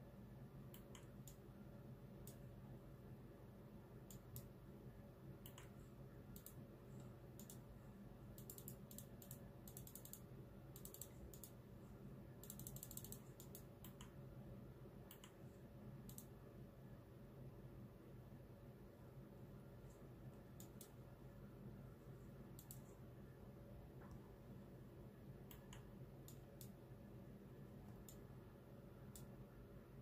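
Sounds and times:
faint room hum: 0:00.0 - 0:30.0
faint sharp clicks: 0:00.7 - 0:01.4, 0:04.1 - 0:04.5, 0:05.4 - 0:07.7, 0:12.4 - 0:14.2, 0:15.1 - 0:15.4, 0:16.1 - 0:16.3, 0:22.6 - 0:22.9, 0:25.4 - 0:26.8, 0:29.1 - 0:29.4.

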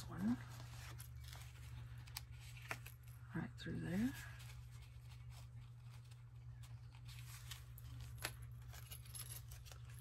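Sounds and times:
paper and ribbon rustling: 0:00.0 - 0:10.0
steady low hum: 0:00.0 - 0:10.0.

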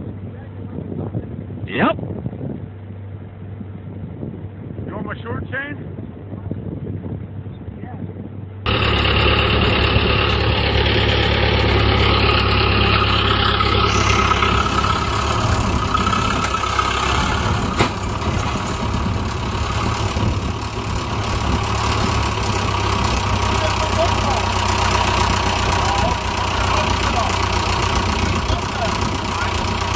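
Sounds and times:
tractor engine running: 0:08.6 - 0:29.9.

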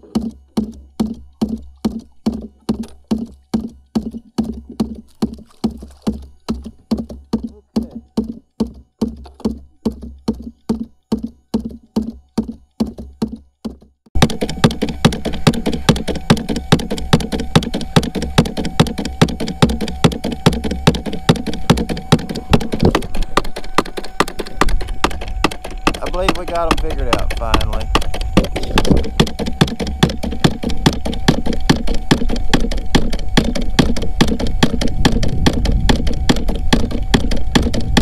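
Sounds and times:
metal thumper knocking on hull: 0:00.0 - 0:38.0
loud steady hum: 0:14.2 - 0:38.0.

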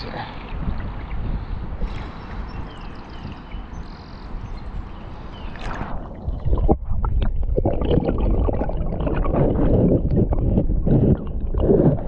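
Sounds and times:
water lapping and splashing: 0:00.0 - 0:12.0
bubbly clicks: 0:05.5 - 0:12.0
muffled underwater gurgling: 0:05.5 - 0:12.0.

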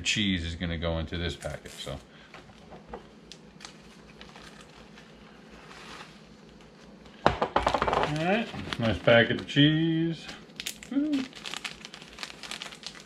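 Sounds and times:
plastic bags rustling: 0:03.5 - 0:07.0, 0:07.6 - 0:13.0
loud plastic crinkling: 0:07.6 - 0:09.5, 0:10.5 - 0:13.0.

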